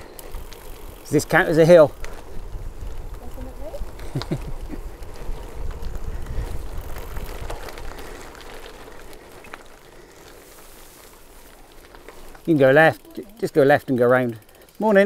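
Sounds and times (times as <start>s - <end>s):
bicycle tyres crackling on gravel: 0.0s - 15.0s
wind rumble on microphone: 2.2s - 8.5s.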